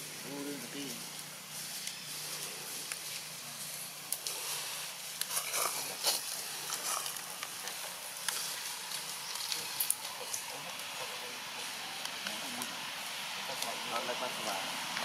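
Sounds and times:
background hiss: 0.0s - 15.0s
small clicks and crackles: 1.1s - 11.0s.

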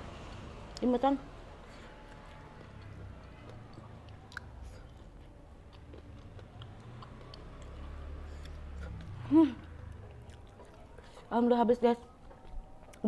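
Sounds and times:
soft chewing: 1.6s - 13.0s.

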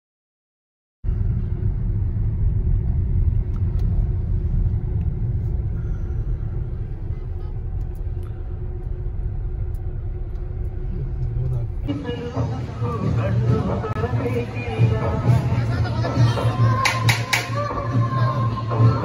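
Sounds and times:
car interior road rumble: 1.1s - 14.5s.

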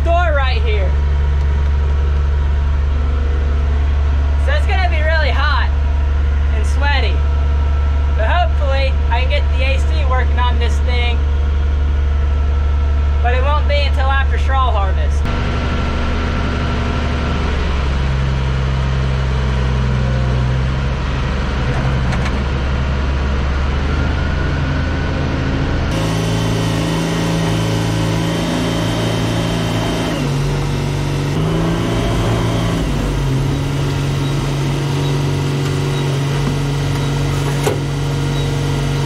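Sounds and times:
farm machine engine running: 0.0s - 39.0s.

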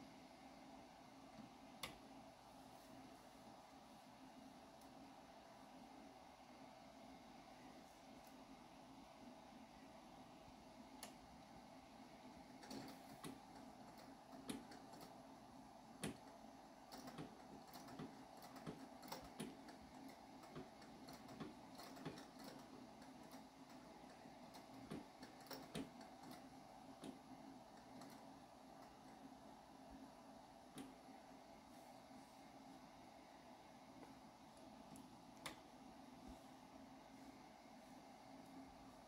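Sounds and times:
treadle sewing machine running: 16.8s - 29.1s.

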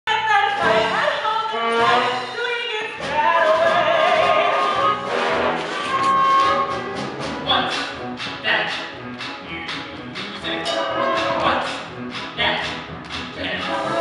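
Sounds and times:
orchestra playing: 0.6s - 14.0s
chorus singing: 3.0s - 5.8s, 10.4s - 14.0s.

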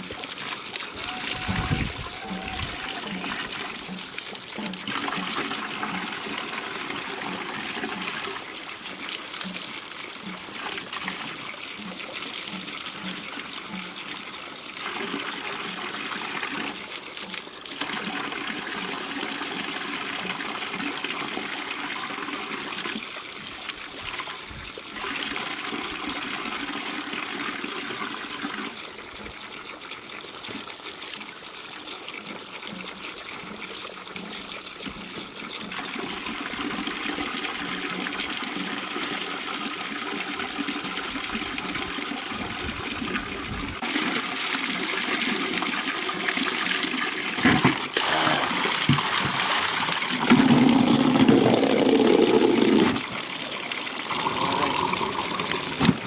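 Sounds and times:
water splashing into bucket: 0.0s - 20.8s, 39.8s - 56.0s
water running from tap: 0.0s - 56.0s.

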